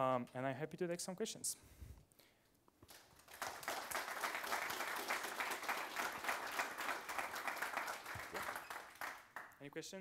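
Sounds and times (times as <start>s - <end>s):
audience applauding: 2.9s - 9.6s.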